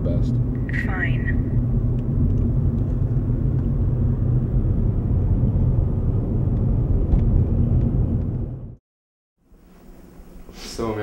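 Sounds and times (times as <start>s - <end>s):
car engine rumble: 0.0s - 8.8s
road noise: 0.0s - 8.8s.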